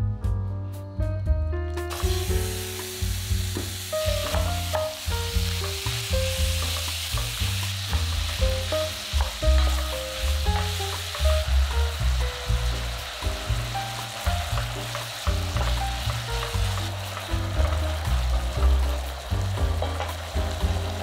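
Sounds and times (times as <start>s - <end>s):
background music with bass: 0.0s - 21.0s
meat sizzling in oil: 1.9s - 21.0s.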